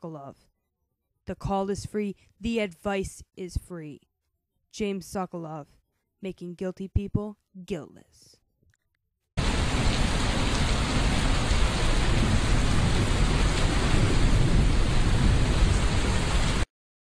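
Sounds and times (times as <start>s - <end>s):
deep rumble: 9.4s - 16.6s
heavy rain: 9.4s - 16.7s.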